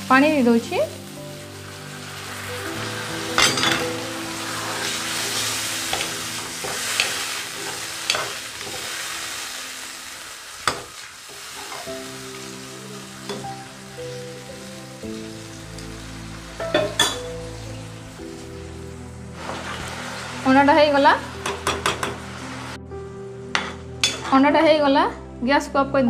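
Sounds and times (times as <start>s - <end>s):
curry sizzling in a pan: 0.0s - 22.8s
spoon clinking against pan: 16.7s - 17.2s.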